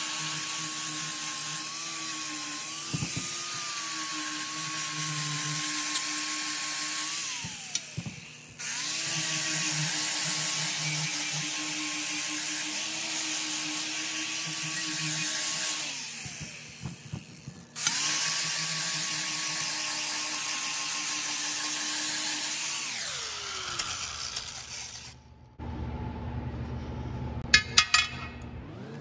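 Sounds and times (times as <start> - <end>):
shop machine motor whine: 28.3 - 29.0.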